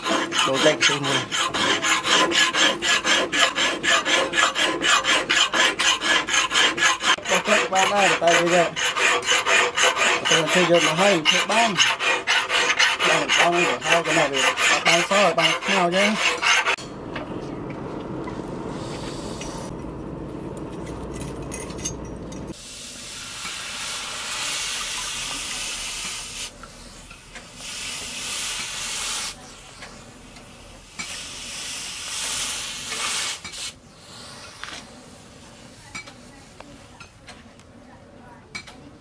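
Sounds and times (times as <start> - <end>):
hot metal sizzling in water: 22.5 - 29.7, 30.8 - 33.7.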